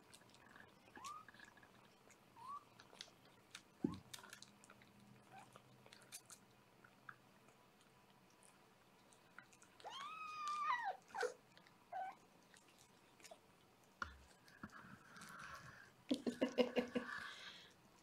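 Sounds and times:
kitten squeaks: 0.9s - 1.4s, 2.4s - 2.7s, 9.8s - 12.2s
kitten meowing: 9.8s - 11.3s.

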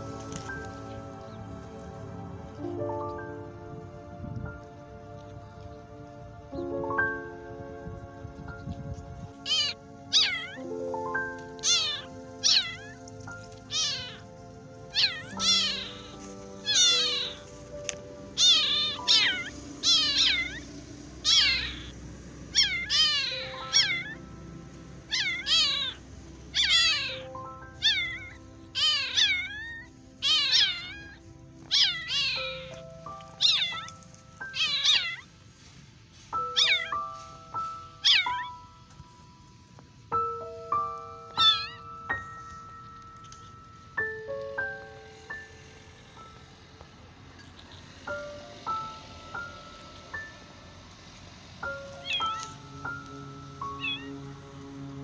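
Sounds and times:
soft music with bell-like notes: 0.0s - 55.0s
kittens meowing: 9.4s - 24.3s, 25.0s - 35.5s, 36.3s - 39.2s, 40.1s - 43.6s, 51.6s - 54.3s.

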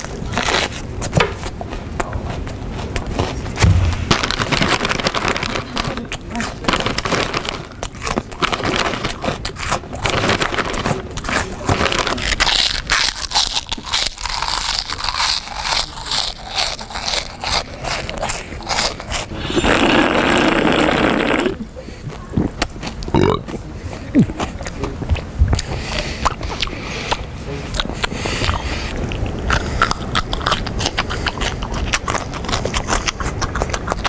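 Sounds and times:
crunching potato chips: 0.0s - 21.5s, 25.6s - 34.0s
chip bag crinkling: 3.1s - 20.5s
man drinking from a can: 19.2s - 21.6s.

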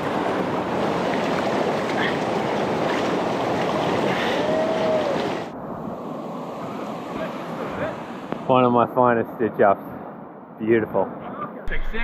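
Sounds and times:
people wading through water: 0.0s - 8.6s.

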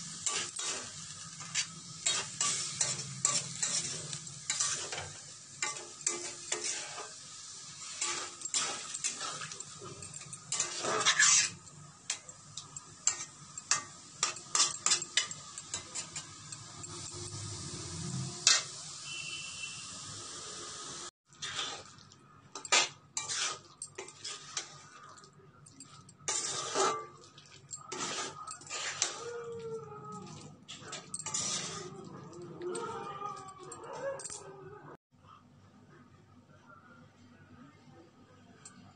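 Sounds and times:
metal spatula scraping pan: 0.0s - 19.6s, 21.3s - 22.0s, 22.6s - 25.2s, 25.8s - 33.0s
low sizzle: 0.0s - 34.4s.

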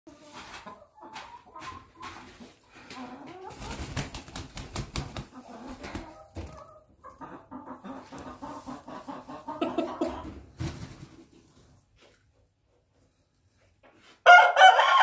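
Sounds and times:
young chicken clucking: 5.4s - 10.4s.

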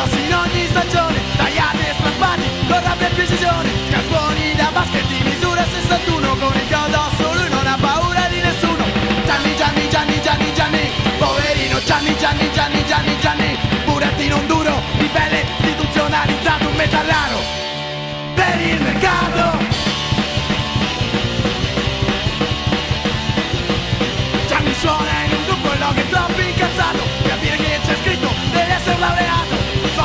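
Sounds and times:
bass guitar: 0.0s - 30.0s
drums: 0.0s - 30.0s
electric guitar: 0.0s - 30.0s
punk rock band playing fast: 0.0s - 30.0s.

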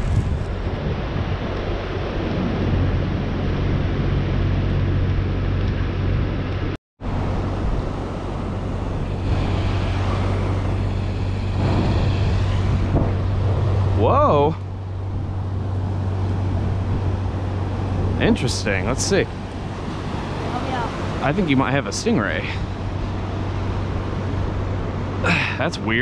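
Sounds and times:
wind buffeting microphone: 0.0s - 26.0s
surf breaking: 7.2s - 26.0s.

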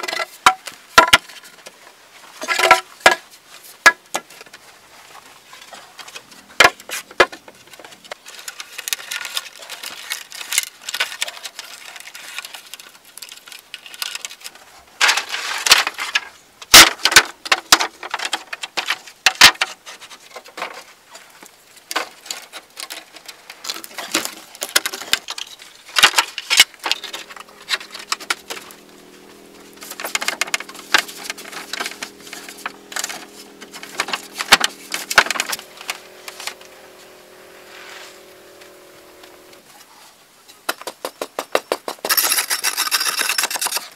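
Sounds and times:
bamboo slats knocking and clattering: 0.0s - 4.6s, 5.6s - 20.9s, 21.9s - 28.6s.

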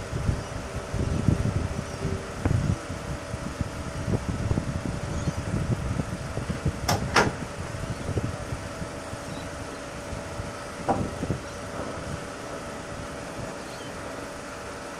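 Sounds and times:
ferry engines humming: 0.0s - 14.9s.

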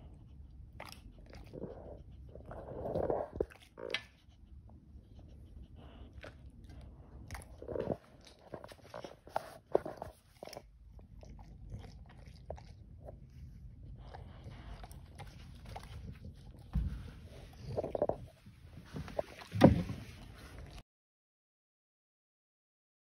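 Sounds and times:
dog crunching vegetables: 0.6s - 4.4s, 6.0s - 18.5s.

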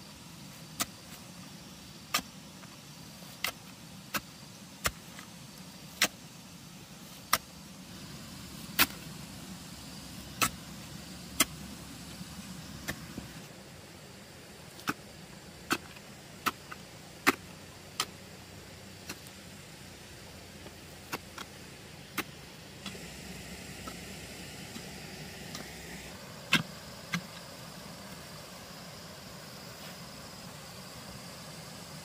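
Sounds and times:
faint steady hiss: 0.0s - 32.0s.

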